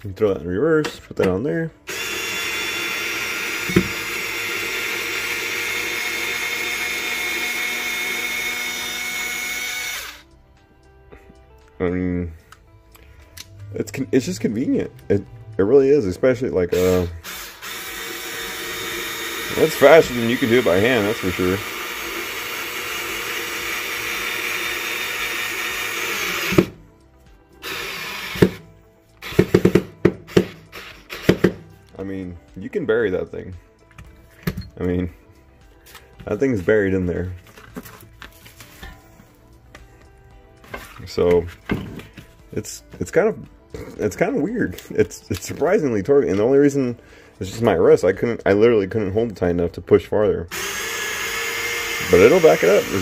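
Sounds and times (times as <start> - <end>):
cordless screwdriver driving screw: 1.9 - 10.2, 50.5 - 53.0
cordless screwdriver motor whining: 1.9 - 10.2, 16.8 - 26.7, 27.6 - 28.6, 50.5 - 53.0.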